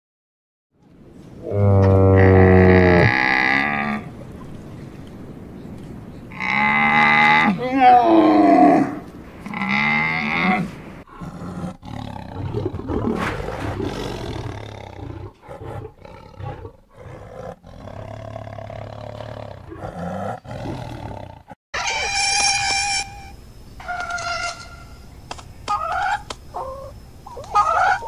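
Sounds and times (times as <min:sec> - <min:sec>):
deep rough animal roars: 0:01.4 - 0:04.1, 0:06.3 - 0:21.6
higher pitched animal call: 0:21.8 - 0:25.0.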